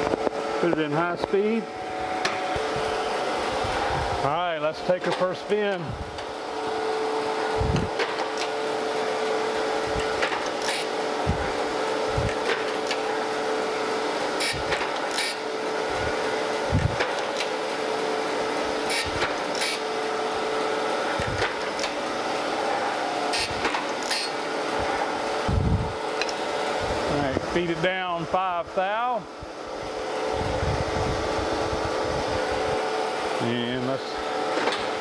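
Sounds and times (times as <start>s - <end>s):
grinder hum and whine: 0.0s - 35.0s.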